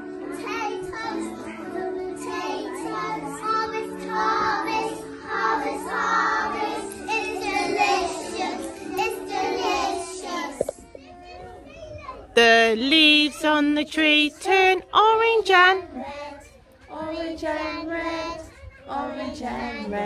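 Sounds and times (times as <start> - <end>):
children singing in unison: 0.0 - 10.9, 15.9 - 20.0.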